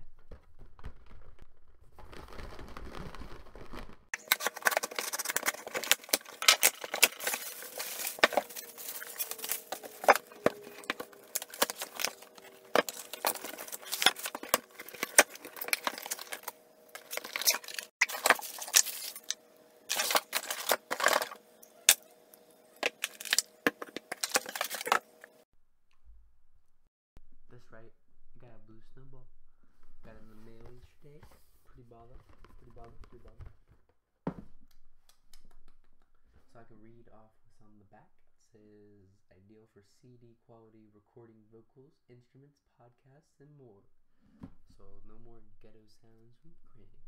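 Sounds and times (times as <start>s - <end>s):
bubble wrap and paper crinkling: 0.0s - 22.1s, 22.8s - 25.2s.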